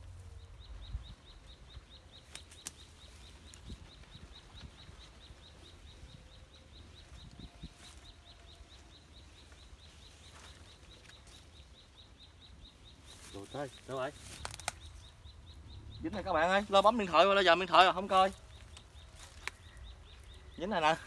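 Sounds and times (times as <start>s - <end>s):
faint low rumble: 0.0s - 20.6s
sharp clicks: 2.2s - 3.8s, 14.2s - 15.2s.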